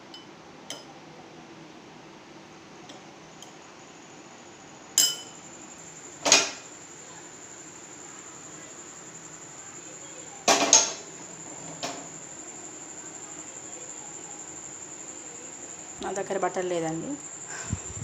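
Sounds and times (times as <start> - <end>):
metal spoon clinking on glass bowl: 5.0 - 5.4
frying pan clanking on stove: 6.2 - 6.6, 10.5 - 11.1.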